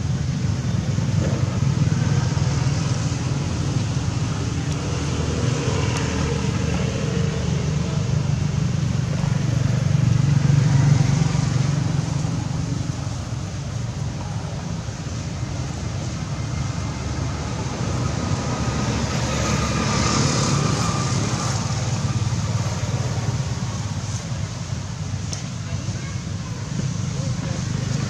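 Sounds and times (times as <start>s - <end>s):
vehicle engine rumbling: 0.0s - 28.0s.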